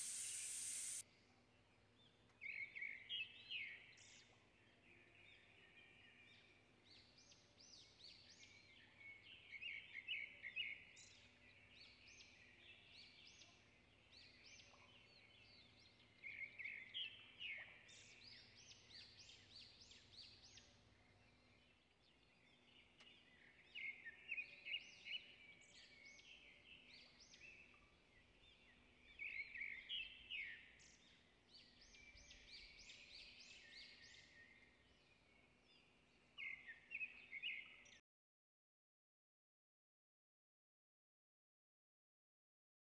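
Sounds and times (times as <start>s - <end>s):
birds chirping: 0.0s - 1.0s.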